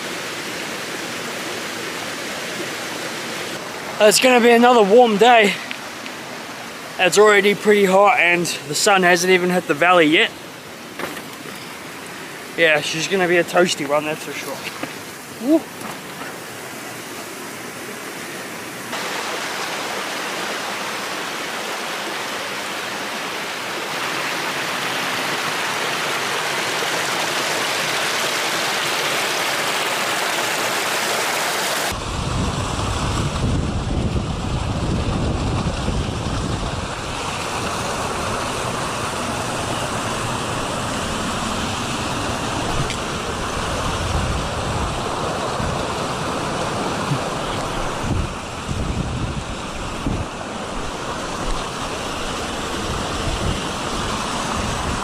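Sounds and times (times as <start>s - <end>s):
river rushing: 0.0s - 55.0s
wind buffeting microphone: 31.9s - 38.5s, 41.9s - 55.0s.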